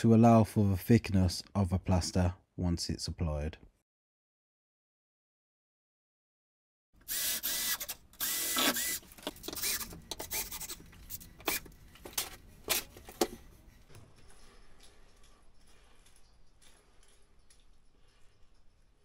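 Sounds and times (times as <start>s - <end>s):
cordless drill driving screws: 7.0s - 10.8s.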